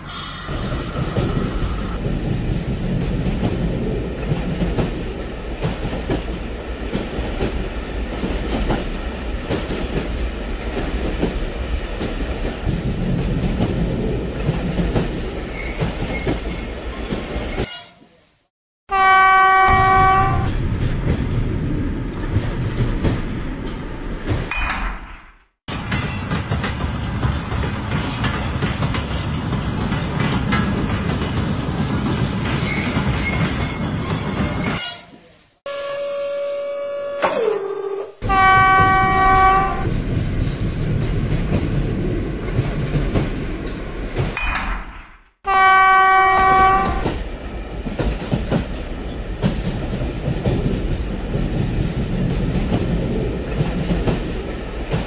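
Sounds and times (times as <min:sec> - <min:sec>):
model locomotive horn: 0:18.9 - 0:20.5, 0:35.7 - 0:39.9, 0:45.5 - 0:47.1.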